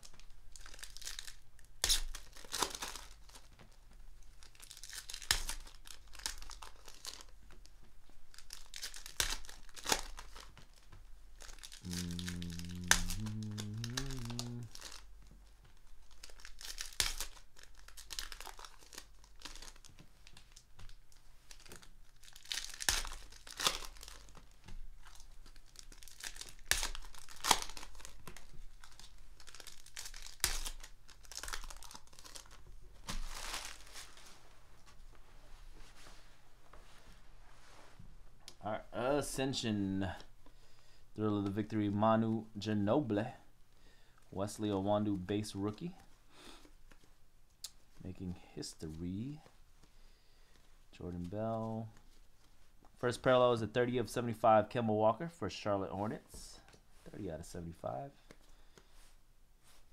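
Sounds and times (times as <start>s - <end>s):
foil wrappers tearing and crinkling: 0.0s - 3.5s, 4.3s - 7.6s, 8.3s - 15.1s, 15.8s - 34.3s.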